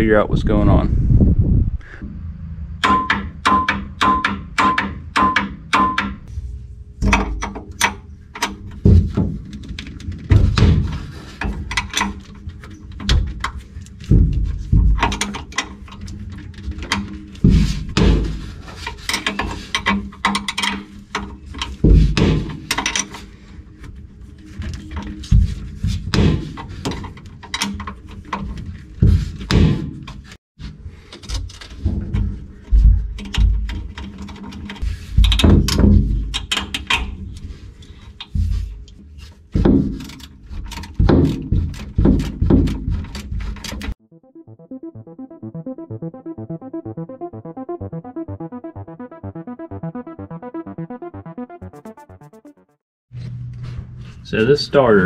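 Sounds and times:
background music: 0:44.0 - 0:52.8.

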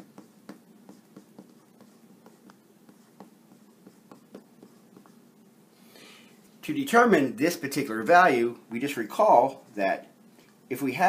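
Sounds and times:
marker writing on whiteboard: 0:00.0 - 0:05.4.

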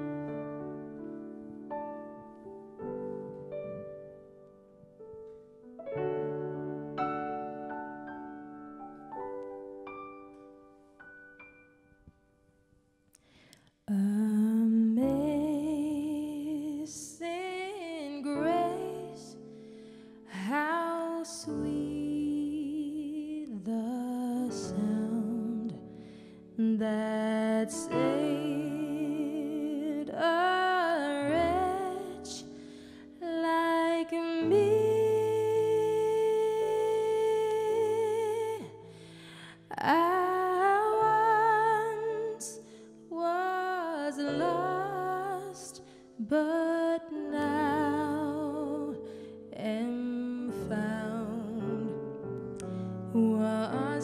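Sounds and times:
solo voice singing with vibrato: 0:13.9 - 0:19.5, 0:20.3 - 0:25.9, 0:26.6 - 0:32.6, 0:33.2 - 0:38.9, 0:39.6 - 0:52.1, 0:53.2 - 0:54.0.

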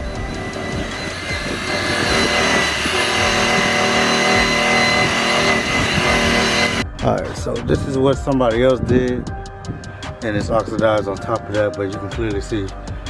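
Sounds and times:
electric polisher motor whine: 0:00.0 - 0:06.8.

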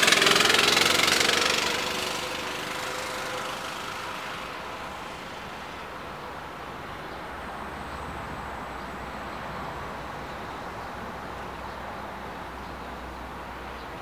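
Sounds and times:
distant mini bike engine: 0:00.0 - 0:13.8.

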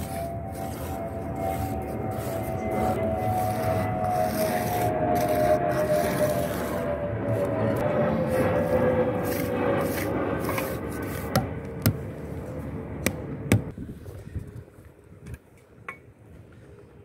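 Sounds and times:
trowel scraping mortar: 0:00.0 - 0:12.0.

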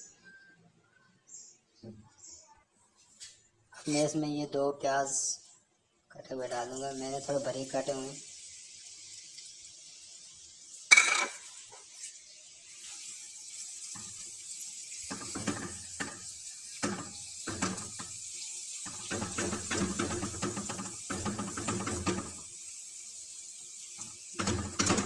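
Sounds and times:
onions sizzling in hot oil: 0:06.3 - 0:25.0
metal clatter on pan: 0:10.9 - 0:11.5, 0:15.0 - 0:18.2, 0:18.9 - 0:22.5, 0:24.4 - 0:25.0.

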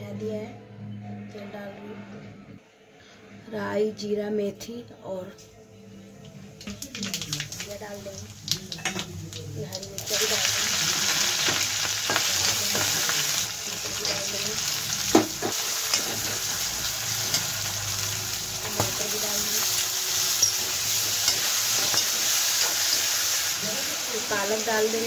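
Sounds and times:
vegetables sizzling in hot oil: 0:06.6 - 0:25.0
steel spoon clinking against pan: 0:15.8 - 0:16.5, 0:18.6 - 0:23.1.

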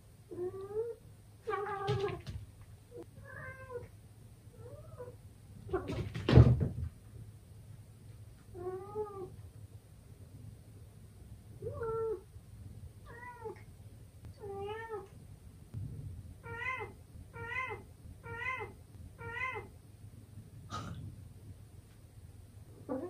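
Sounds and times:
cat meowing: 0:00.3 - 0:02.3, 0:16.4 - 0:19.7.

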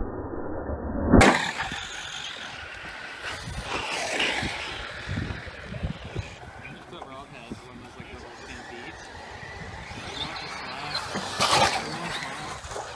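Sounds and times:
sharp loud crack: 0:01.1 - 0:02.6
radio-controlled trucks running: 0:01.2 - 0:12.9.

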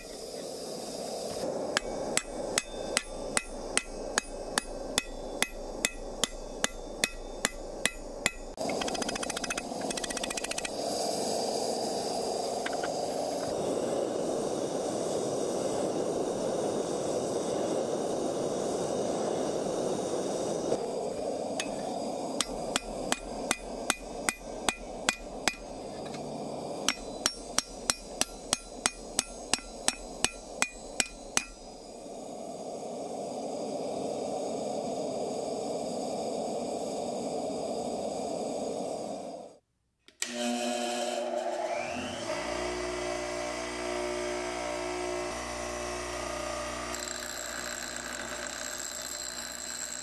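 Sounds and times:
hammer striking hot metal on anvil: 0:01.7 - 0:10.7, 0:21.6 - 0:26.2, 0:26.8 - 0:31.7.

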